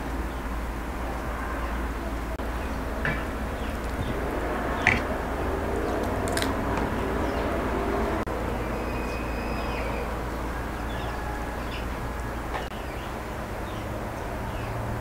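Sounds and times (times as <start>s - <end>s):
low outdoor rumble: 0.0s - 15.0s
faint high whistles: 8.5s - 10.2s.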